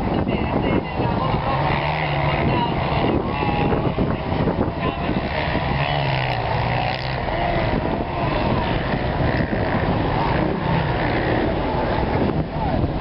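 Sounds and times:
vehicle engines running: 0.0 - 13.0.

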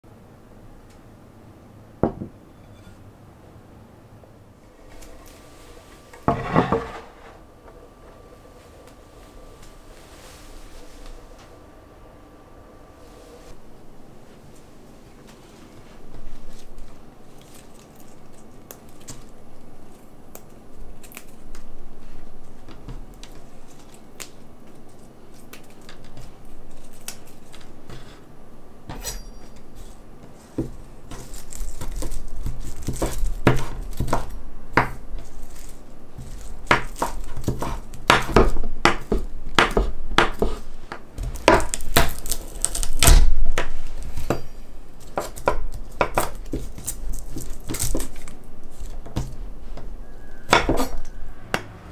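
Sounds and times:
knife chopping on wooden board: 32.8 - 35.0, 36.2 - 40.6.

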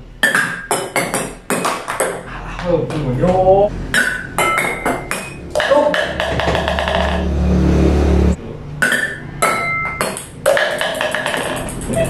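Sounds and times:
ping pong balls bouncing: 0.2 - 7.3, 8.8 - 12.0
low hum: 3.5 - 9.4
balls clinking on ceramic plates: 4.0 - 7.2, 8.8 - 12.0.

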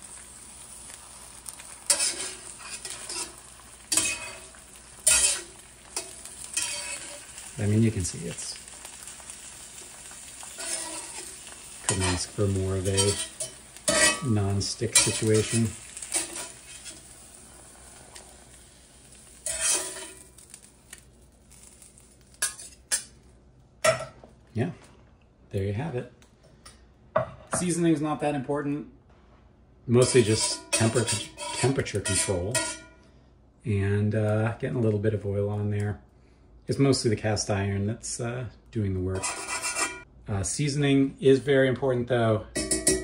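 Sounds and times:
eggs sizzling: 0.0 - 24.1, 29.9 - 33.0
metal spatula scraping skillet: 1.4 - 7.5, 10.4 - 17.3, 19.2 - 20.6, 22.4 - 23.1, 30.0 - 33.0, 39.1 - 40.1.

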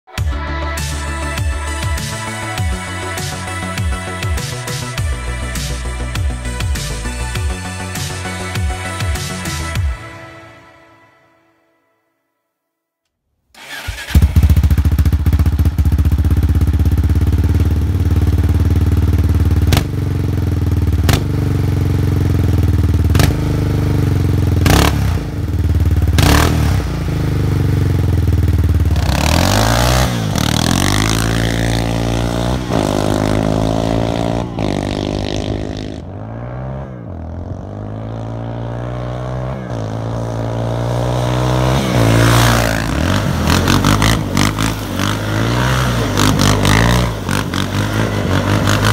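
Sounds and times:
quad engine revving: 13.6 - 48.9.

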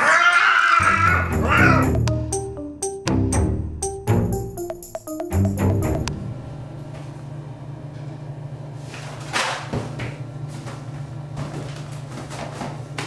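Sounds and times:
music snippet: 1.0 - 6.9
steady low hum: 5.4 - 12.2.

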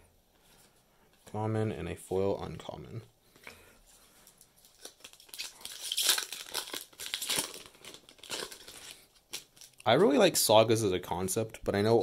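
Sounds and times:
foil wrapper tearing and crinkling: 4.6 - 9.8.

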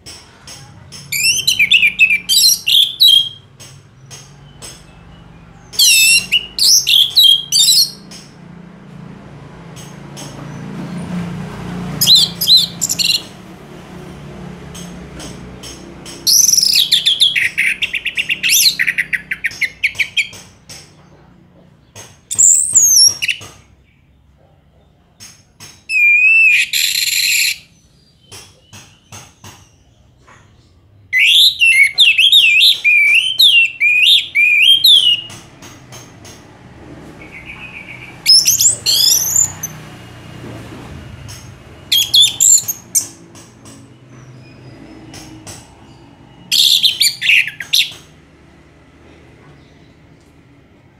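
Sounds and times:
thrush singing whistles and trills: 1.1 - 8.4, 11.9 - 13.4, 15.6 - 20.7, 22.2 - 23.8, 25.8 - 29.8, 31.1 - 35.5, 37.2 - 39.9, 41.4 - 48.2.

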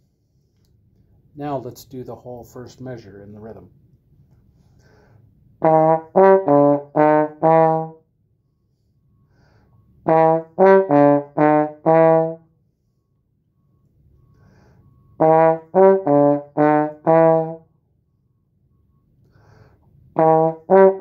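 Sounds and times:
trombone playing short notes: 5.6 - 8.0, 10.0 - 12.4, 15.2 - 17.6, 20.2 - 21.0.

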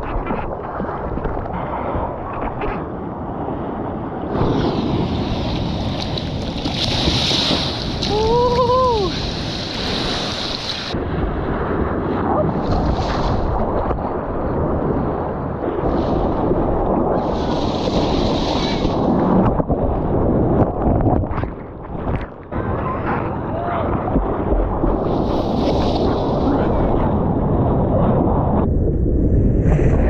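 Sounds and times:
wind buffeting microphone: 0.0 - 30.0
ocean surf breaking: 3.5 - 20.4, 22.5 - 27.9.

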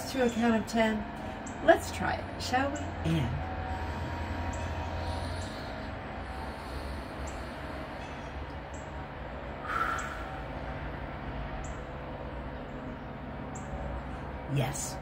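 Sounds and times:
slow quiet breathing: 3.6 - 11.1.

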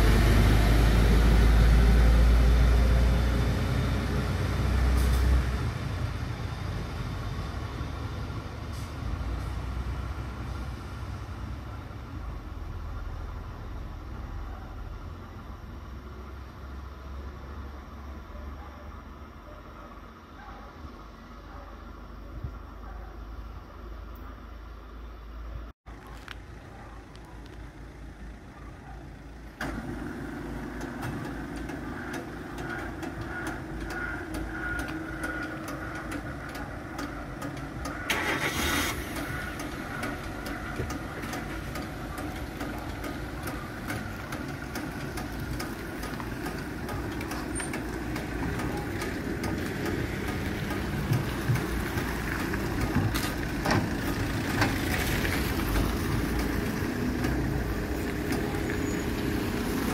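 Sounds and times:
car engines idling: 0.0 - 59.9
cars driving over level crossing: 26.3 - 59.9.

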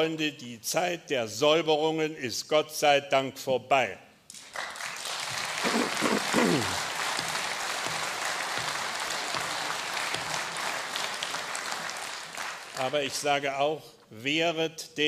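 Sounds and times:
audience applauding: 4.4 - 13.2
person calling out: 5.7 - 6.8.

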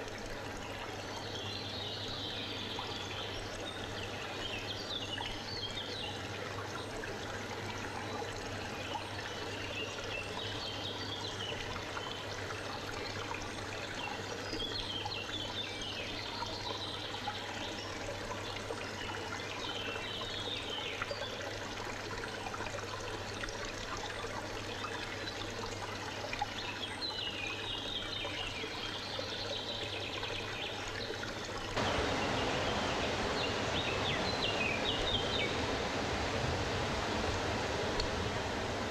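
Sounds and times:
steady water rush: 0.0 - 38.9
stream trickling: 0.0 - 38.9
small birds chirping: 31.8 - 35.6.

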